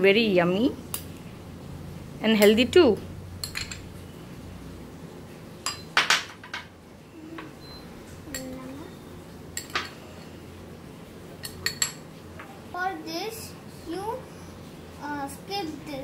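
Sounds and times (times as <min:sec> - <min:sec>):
spoon clinking on glass bowl: 0:05.6 - 0:06.2.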